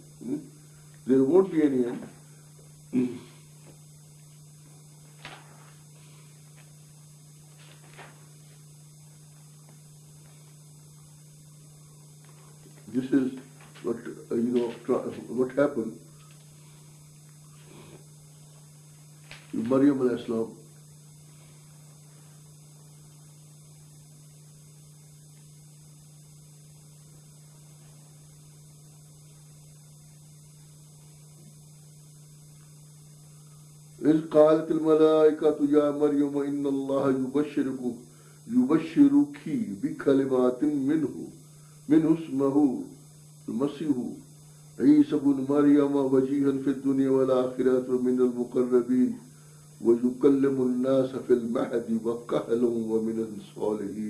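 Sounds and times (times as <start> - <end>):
faint hiss: 0.0 - 54.0
low electrical hum: 0.0 - 54.0.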